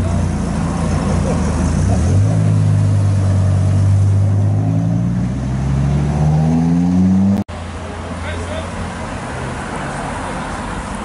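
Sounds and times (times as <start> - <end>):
sports car engine accelerating: 0.0 - 7.5.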